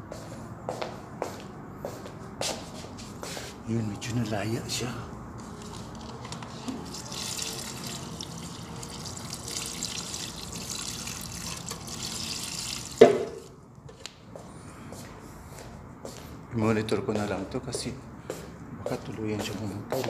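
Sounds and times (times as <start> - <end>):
water running: 6.8 - 13.6.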